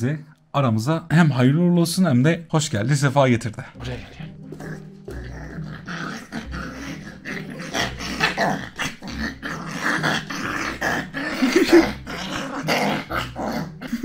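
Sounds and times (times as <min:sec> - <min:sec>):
puppy growling in play: 0:03.8 - 0:14.0.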